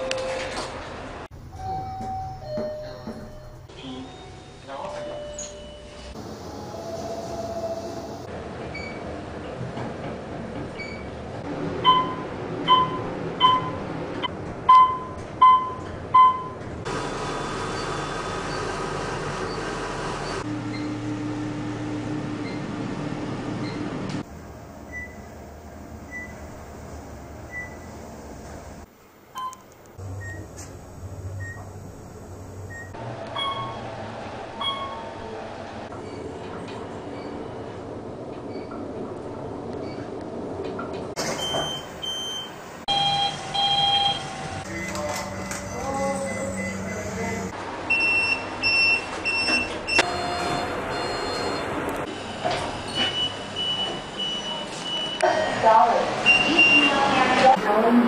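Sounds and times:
elevator floor-passing beeps: 1.4s - 7.6s, 11.8s - 16.6s, 23.6s - 33.9s, 34.6s - 35.2s, 41.2s - 55.6s, 56.2s - 57.2s
elevator chime: 1.5s - 6.2s, 23.6s - 28.8s, 32.7s - 33.8s, 34.6s - 35.2s, 41.2s - 51.8s
moving elevator hum: 20.3s - 28.9s, 29.8s - 36.3s, 41.2s - 47.6s.

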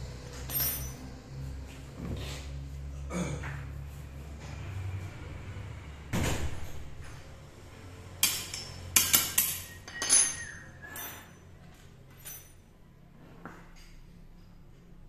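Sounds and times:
sharp metallic clinks: 0.5s - 1.1s, 8.2s - 11.5s.

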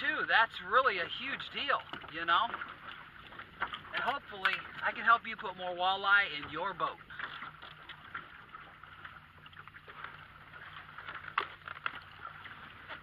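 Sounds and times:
boat motor humming: 0.0s - 13.0s
wind and water hiss: 0.0s - 13.0s.

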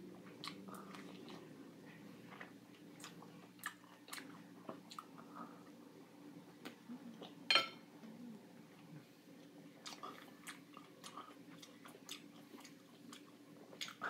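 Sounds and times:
person chewing pineapple: 0.2s - 5.7s, 8.8s - 14.0s.

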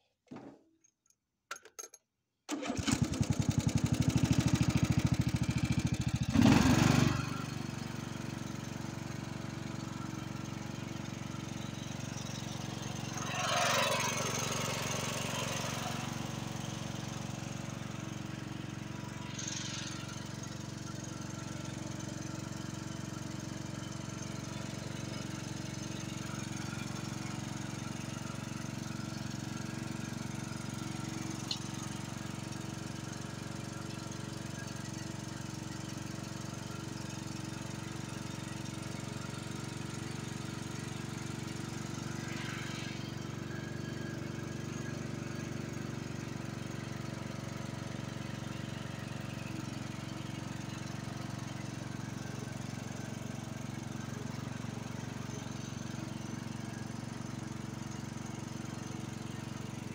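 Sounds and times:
electric starter cranking engine: 2.5s - 24.8s
mower engine running: 2.5s - 59.9s.

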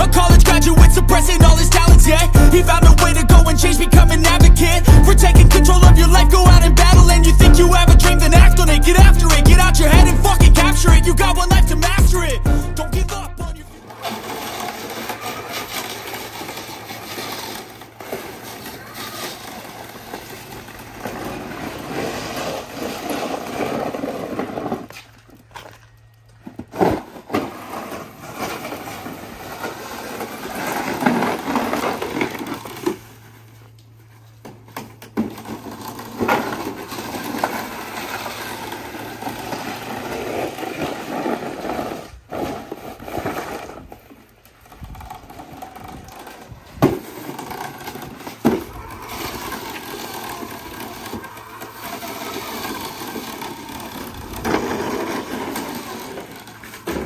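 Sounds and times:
plastic blade scraping wet concrete: 13.8s - 25.2s, 26.6s - 33.2s, 34.7s - 57.0s.

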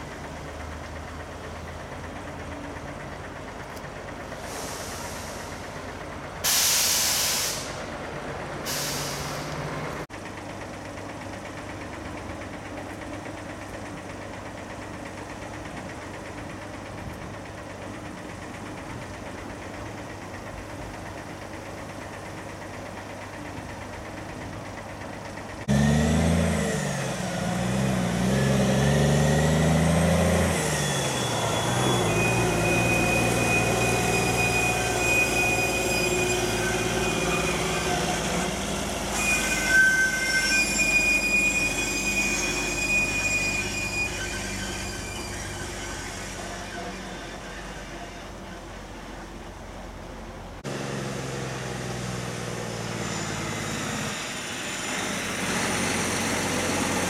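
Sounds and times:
diesel truck engine: 0.0s - 39.6s, 40.6s - 57.0s
air brakes hissing: 4.4s - 8.0s, 8.6s - 9.7s
thin high squeals: 30.0s - 48.5s.

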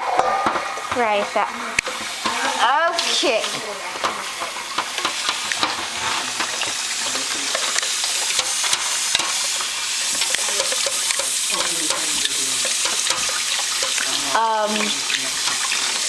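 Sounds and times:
faucet water splashing into pot: 0.0s - 16.0s.

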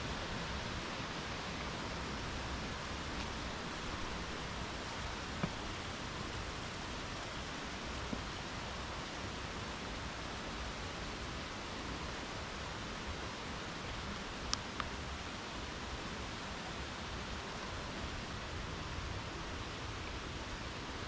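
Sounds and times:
mountain stream rushing: 0.0s - 21.0s
faint clicks: 14.4s - 15.0s.

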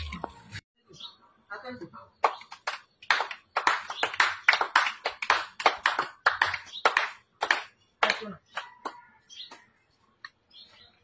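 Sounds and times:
people clapping: 2.2s - 9.6s.

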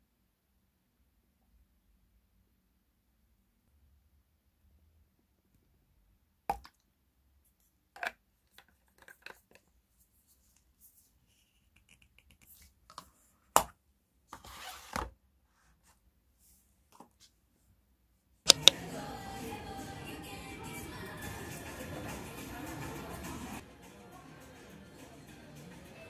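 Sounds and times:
plastic bottle clicks and knocks: 6.5s - 6.8s.

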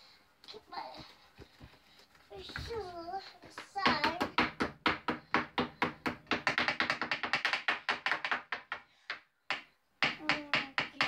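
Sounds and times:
hammer and chisel tapping plaster: 3.4s - 11.0s.

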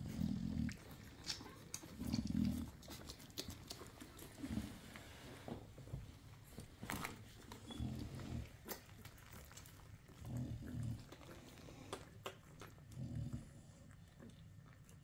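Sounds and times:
puppies grunting: 0.0s - 4.8s.

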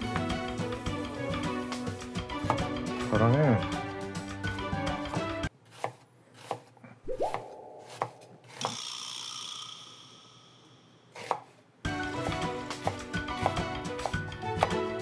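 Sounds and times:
knife slicing onion on board: 2.4s - 2.7s, 5.1s - 8.8s, 11.1s - 15.0s.

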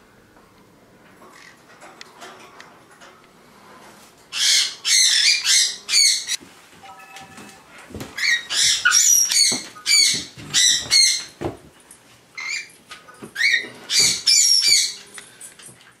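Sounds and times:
parrot squawking: 4.3s - 6.4s, 8.2s - 11.2s.

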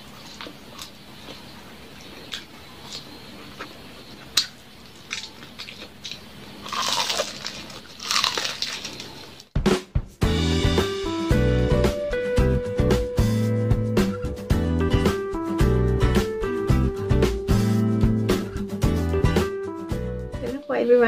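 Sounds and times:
soft chewing clicks: 0.0s - 9.1s
loud crunching of crispy food: 2.1s - 9.5s.

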